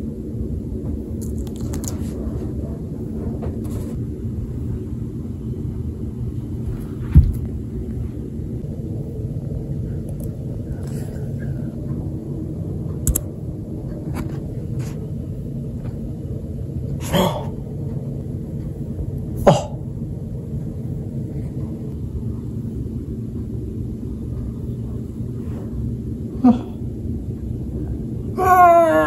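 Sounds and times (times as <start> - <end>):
steady low rumble: 0.0 - 29.0.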